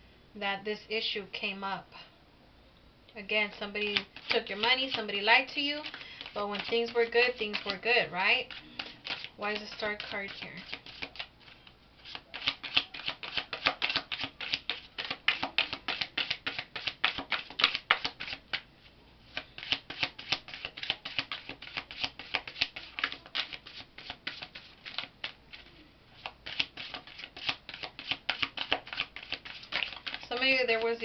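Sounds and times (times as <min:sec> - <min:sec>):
cards being shuffled: 0:03.9 - 0:05.2, 0:05.8 - 0:07.8, 0:08.4 - 0:18.6, 0:19.3 - 0:30.9.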